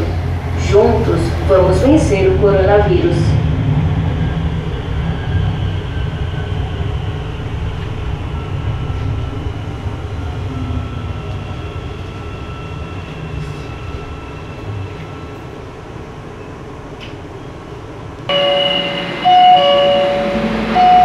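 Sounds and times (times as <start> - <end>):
metro train rumbling: 0.0 - 21.0
faint high whine: 18.3 - 21.0.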